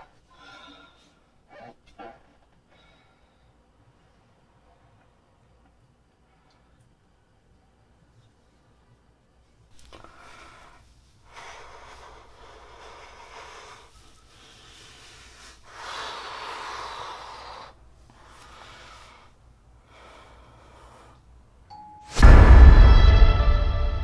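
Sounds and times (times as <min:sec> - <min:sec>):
man breathing heavily: 0:09.9 - 0:21.5.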